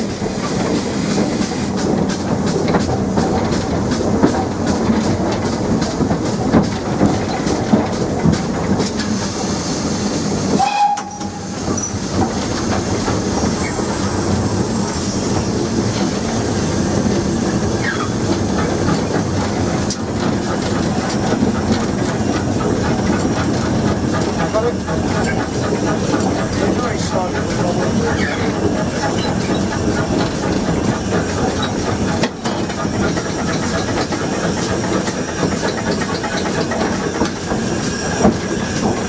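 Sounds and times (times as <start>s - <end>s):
steam locomotive running: 0.0s - 39.0s
wheels clattering over rail joints: 0.4s - 9.6s, 10.2s - 39.0s.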